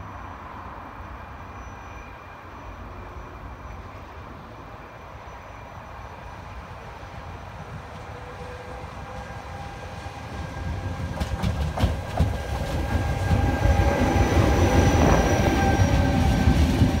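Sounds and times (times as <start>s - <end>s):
faint high whine: 0.0s - 7.2s
distant locomotive rumble: 0.1s - 17.0s.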